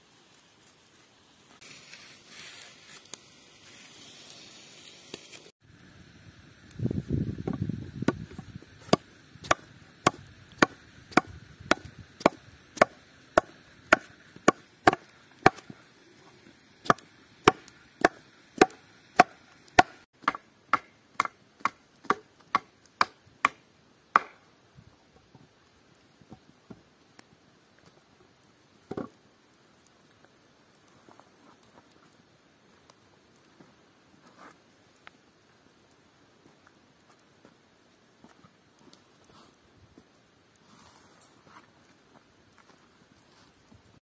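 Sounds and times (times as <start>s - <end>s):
scraping rustle: 0.4s - 5.5s, 40.6s - 42.0s.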